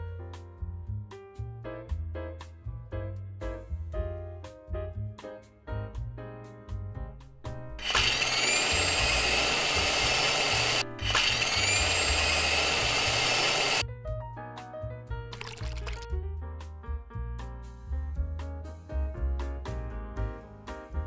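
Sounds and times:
light piano music: 0.0s - 7.8s, 13.8s - 21.0s
blender motor whine: 7.8s - 13.8s.

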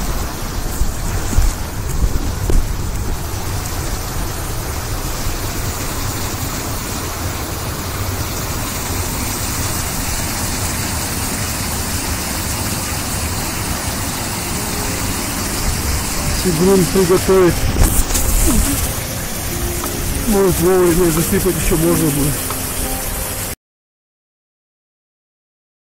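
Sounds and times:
water rushing over cascades: 0.0s - 23.6s.

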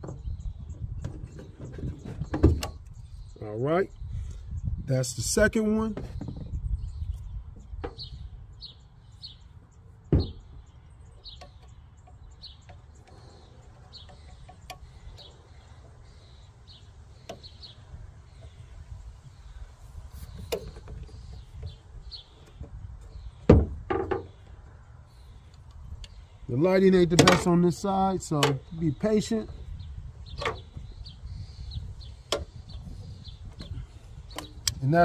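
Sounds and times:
small bird chirping: 6.1s - 23.5s, 28.6s - 35.0s.

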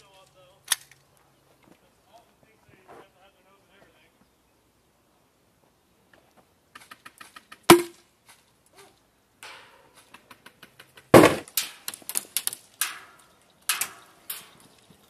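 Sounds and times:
airsoft gunfire cracks: 11.1s - 11.5s.

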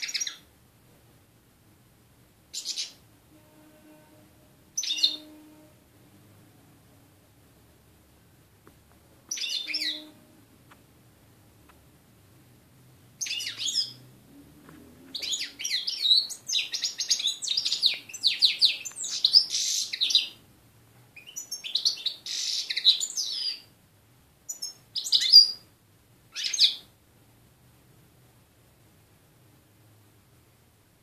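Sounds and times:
goldfinch twittering song: 4.8s - 5.3s, 9.3s - 10.2s, 13.2s - 14.0s, 15.1s - 20.4s
short bird calls: 9.3s - 10.3s, 21.2s - 23.6s.

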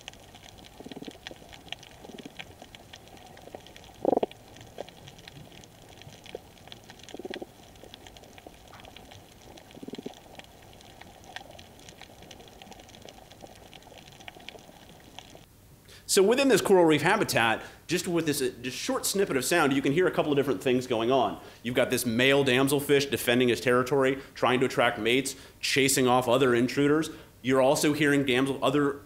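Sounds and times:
snapping shrimp crackling: 0.0s - 15.5s.

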